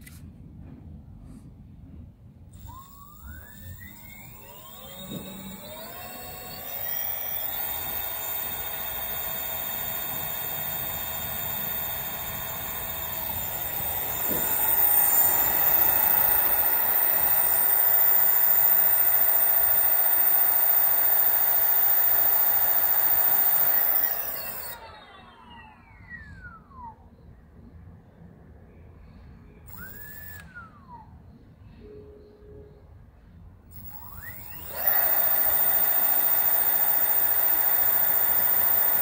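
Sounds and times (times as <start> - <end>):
electric motor high whine: 2.6 - 26.9, 29.7 - 31.0, 33.7 - 39.0.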